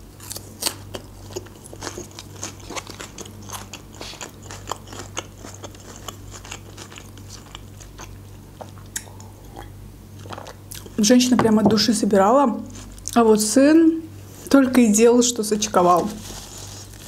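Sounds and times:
steady low hum: 0:00.0 - 0:17.0
crunchy chewing: 0:00.1 - 0:11.0, 0:16.0 - 0:17.0.

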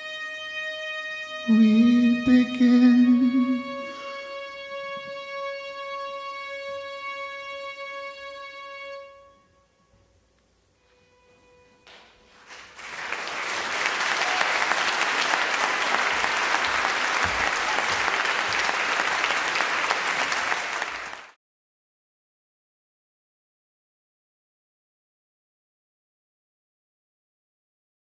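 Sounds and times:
audience applause: 0:12.3 - 0:21.4.

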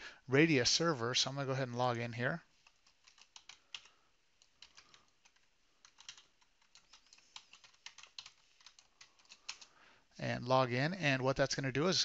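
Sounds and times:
faint keyboard typing: 0:02.4 - 0:09.9.

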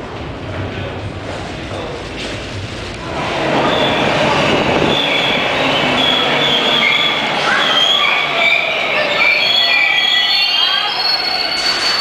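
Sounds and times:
subway train rumbling: 0:00.0 - 0:12.0
wheel squeal: 0:03.6 - 0:12.0.

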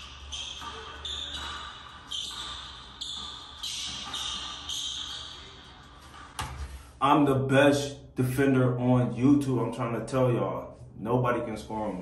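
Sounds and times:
basketball bouncing on wooden floor: 0:00.0 - 0:06.7.

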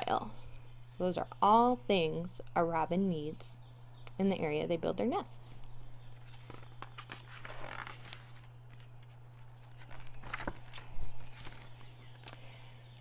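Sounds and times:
book page turning: 0:06.2 - 0:12.4.

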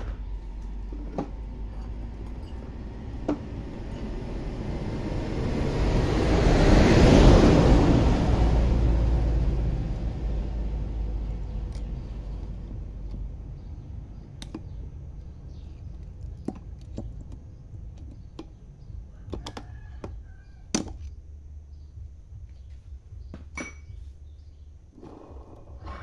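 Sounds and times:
metallic clicks of pliers and parts: 0:01.7 - 0:02.7.

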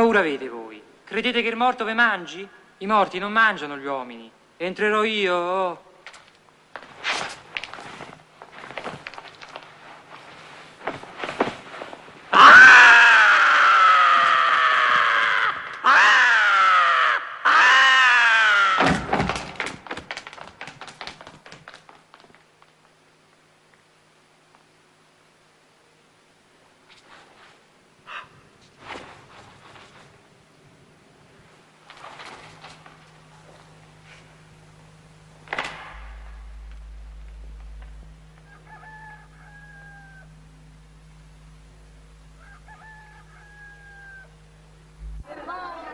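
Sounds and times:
man screaming: 0:12.4 - 0:18.8
rooster crowing: 0:12.4 - 0:18.8, 0:38.1 - 0:41.0, 0:42.2 - 0:44.6
heavy thud: 0:35.5 - 0:38.5.

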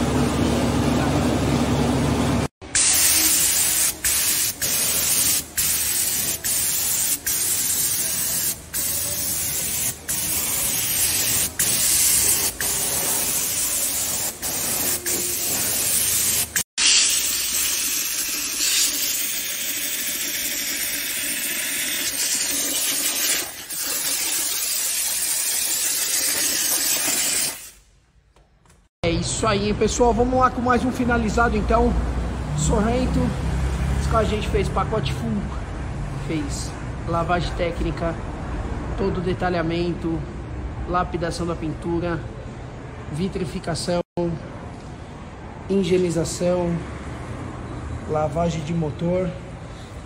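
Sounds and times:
spray gun hissing: 0:02.7 - 0:27.8.

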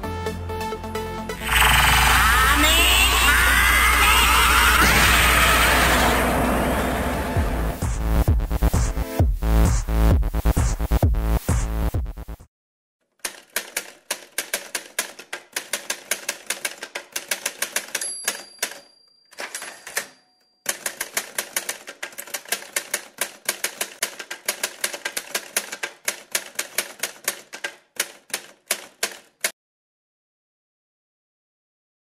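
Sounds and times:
typewriter key clacks: 0:13.2 - 0:29.6
typewriter bell ring: 0:17.8 - 0:21.4.

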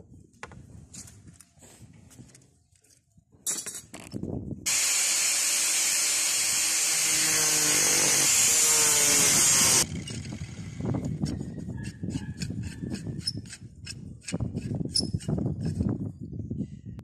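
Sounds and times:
angle grinder cutting tube: 0:04.7 - 0:11.3.

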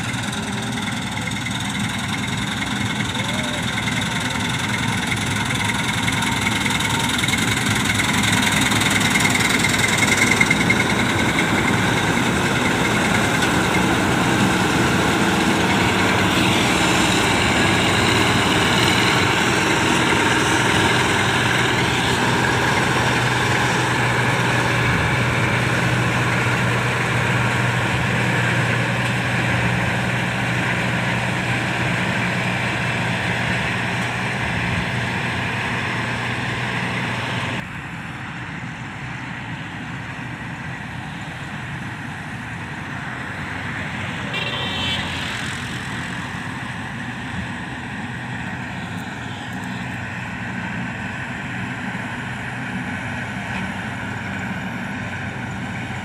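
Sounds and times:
combine harvester running: 0:00.0 - 0:56.0.

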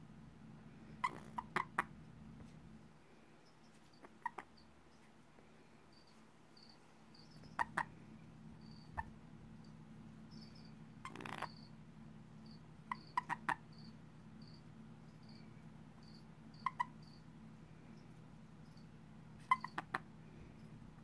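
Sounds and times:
toad chirping trills: 0:01.0 - 0:01.9, 0:03.9 - 0:04.7, 0:06.6 - 0:08.0, 0:10.3 - 0:11.8, 0:12.4 - 0:14.6, 0:16.0 - 0:17.3, 0:19.4 - 0:20.1.

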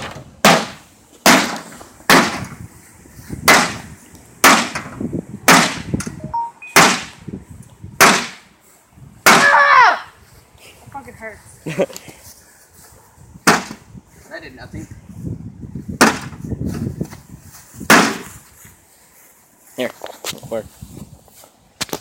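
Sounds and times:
person shouting: 0:09.3 - 0:10.2.

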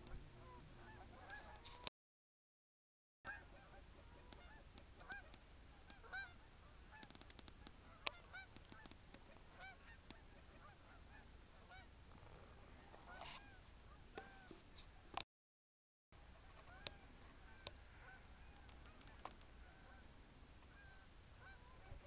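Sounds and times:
geese honking in flight: 0:00.0 - 0:01.8, 0:03.3 - 0:07.1, 0:07.8 - 0:11.9, 0:12.5 - 0:14.6, 0:16.3 - 0:20.1, 0:20.7 - 0:22.0.

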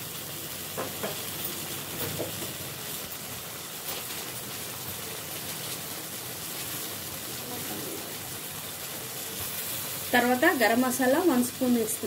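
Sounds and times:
curry sizzling in a pot: 0:00.0 - 0:12.0.

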